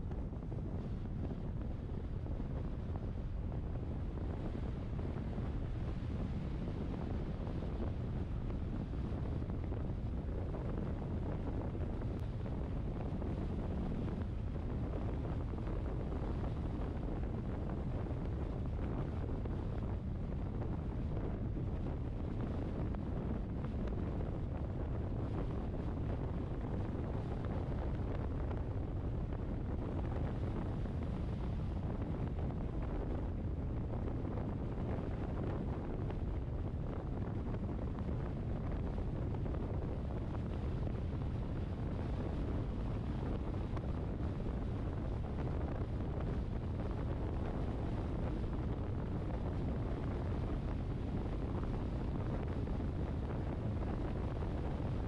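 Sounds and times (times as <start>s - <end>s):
wind buffeting the microphone: 0.0s - 55.0s.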